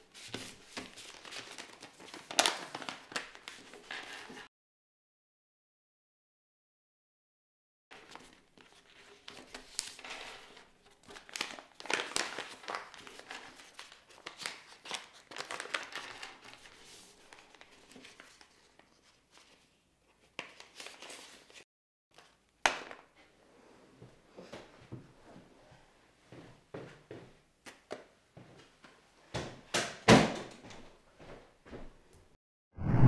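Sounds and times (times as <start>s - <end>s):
paper rustling and crinkling: 0.0s - 4.5s, 7.9s - 21.6s.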